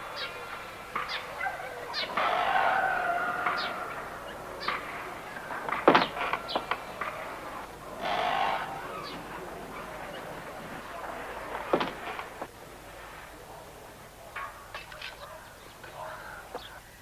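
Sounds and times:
wooden doors pushed shut: 11.5s - 12.5s.

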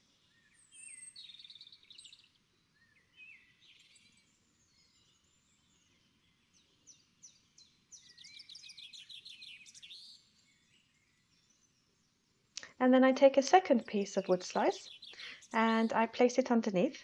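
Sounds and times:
faint birdsong: 0.0s - 17.0s.

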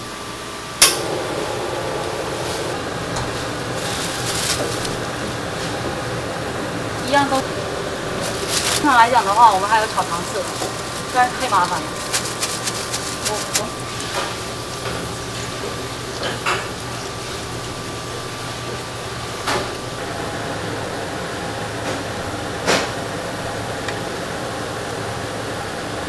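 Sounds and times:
low hum: 0.9s - 12.1s
pot of broth boiling: 0.9s - 26.0s.

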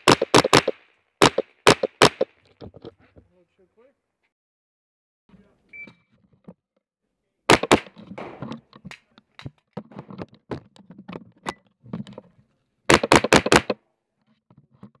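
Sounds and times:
rifle shots: 0.0s - 2.3s, 7.5s - 8.6s, 12.9s - 13.8s.

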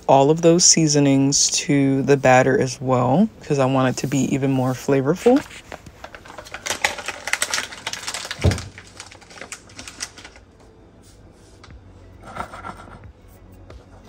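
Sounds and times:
faint handling sounds: 3.8s - 14.0s.

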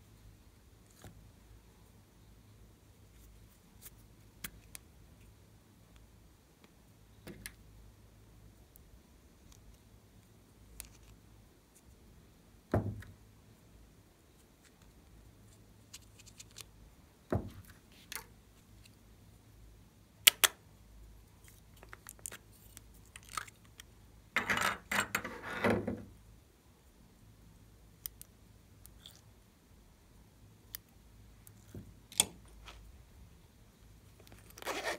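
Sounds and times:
rustling: 34.0s - 34.9s.

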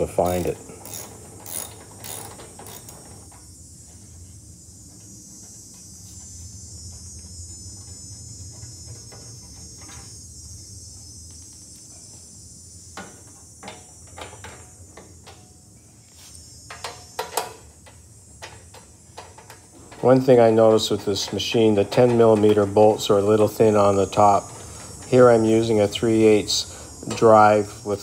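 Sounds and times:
faint steady hiss: 0.0s - 28.0s
ratchet clicks and knocks: 0.1s - 3.5s, 16.6s - 27.4s.

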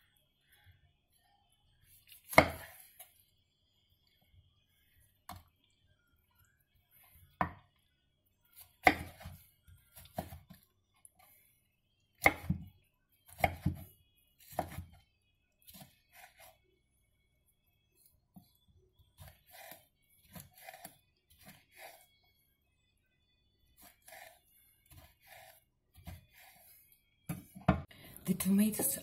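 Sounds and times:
knife chopping on wooden board: 8.8s - 9.4s, 13.3s - 13.8s.

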